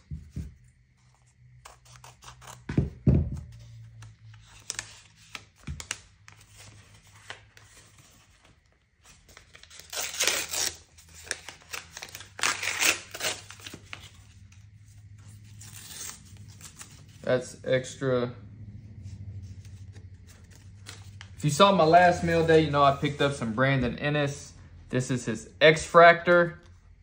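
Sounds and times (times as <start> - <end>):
paper envelope ripping: 1.6 - 2.7, 4.3 - 8.3, 9.1 - 14.6, 15.4 - 17.2, 19.7 - 23.2.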